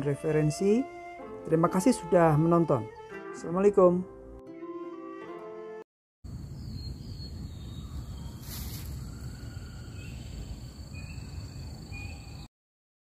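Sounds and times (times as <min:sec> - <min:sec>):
bird chirps: 0:06.5 - 0:12.5
insects shrilling: 0:08.1 - 0:11.3
brief hiss: 0:08.4 - 0:09.2.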